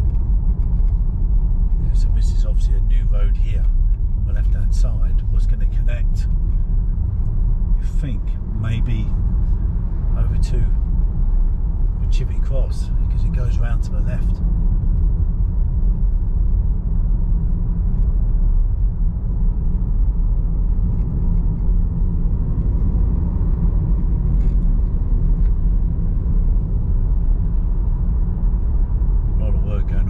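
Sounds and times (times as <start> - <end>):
road and tyre rumble in car: 0.0 - 30.0.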